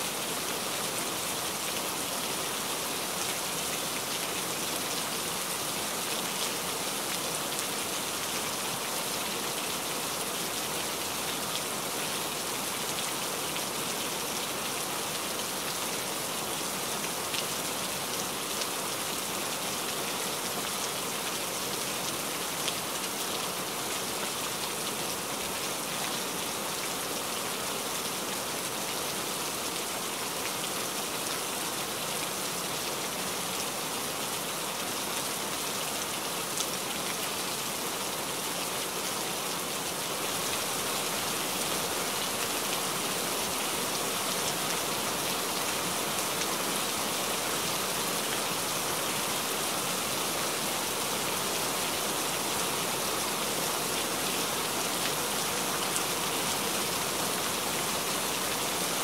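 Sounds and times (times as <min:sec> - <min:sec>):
rain falling on leaves: 0:00.0 - 0:59.0.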